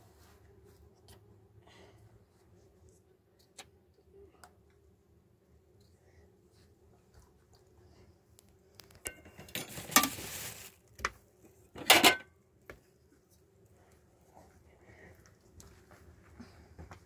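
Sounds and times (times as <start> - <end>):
hard objects clinking and clattering: 9.0 - 10.6.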